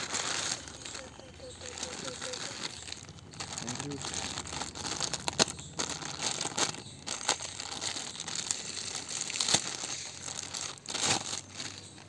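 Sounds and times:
plastic bag crinkling: 0:00.0 - 0:12.0
plastic bag snap: 0:09.2 - 0:09.9.

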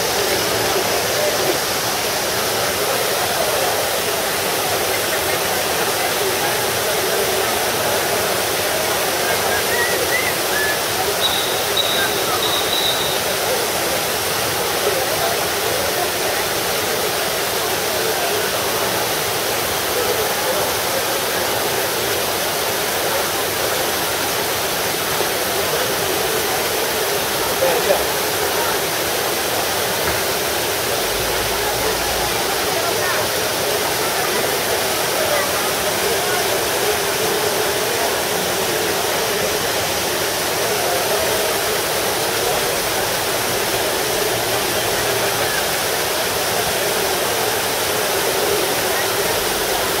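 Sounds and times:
fountain water splashing: 0:00.0 - 0:50.0.

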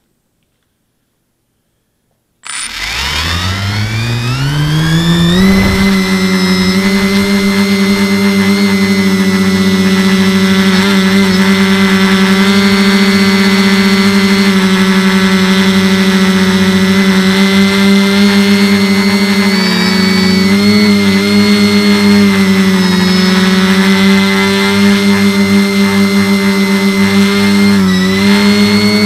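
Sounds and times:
drone motors whining: 0:02.4 - 0:29.0.

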